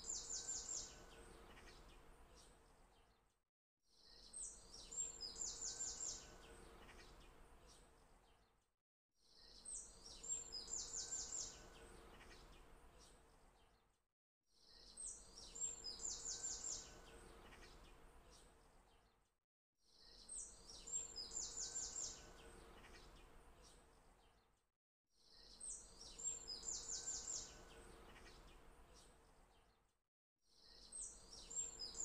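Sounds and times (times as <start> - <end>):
looped birdsong chirps: 0.0 - 2.6, 9.4 - 13.6, 14.6 - 18.5, 20.0 - 24.3, 25.2 - 29.7, 30.5 - 32.0.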